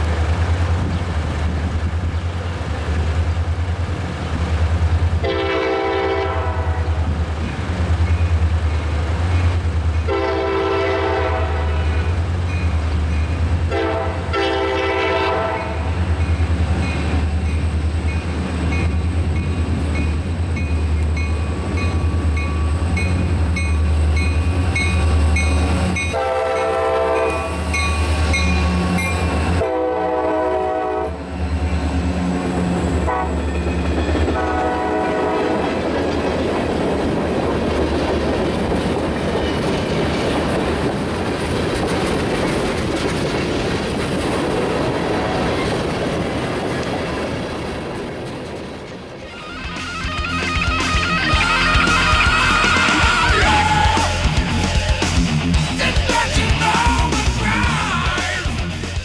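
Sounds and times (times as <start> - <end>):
freight locomotives rumbling: 0.0 - 59.0
train air horn blasts: 5.2 - 6.9, 10.1 - 12.1, 13.7 - 16.0, 26.0 - 31.4, 33.0 - 33.5, 34.2 - 35.8
train wheel clatter: 31.4 - 55.3.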